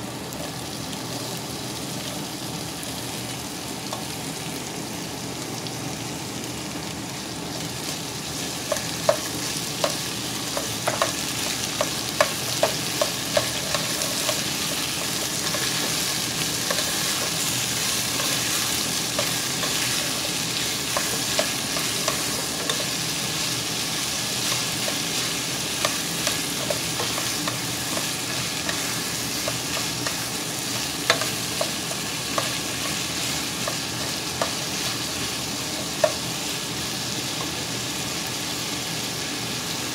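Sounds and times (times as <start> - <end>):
vegetables sizzling in a pot: 0.0 - 39.9
spatula knocking and scraping pot: 8.7 - 23.0, 24.4 - 35.0.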